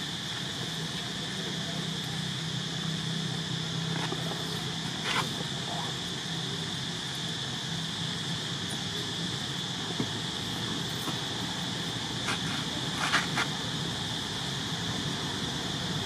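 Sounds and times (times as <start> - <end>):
insects droning: 0.0 - 16.0.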